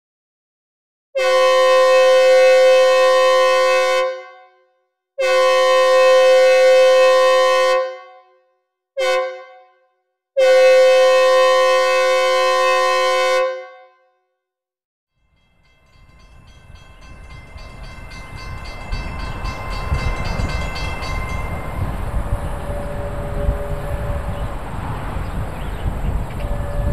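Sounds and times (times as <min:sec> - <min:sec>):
synthesized train horn blasts: 0:01.2 - 0:14.1, 0:16.4 - 0:25.2, 0:25.9 - 0:26.9
low train rumble: 0:15.2 - 0:26.9.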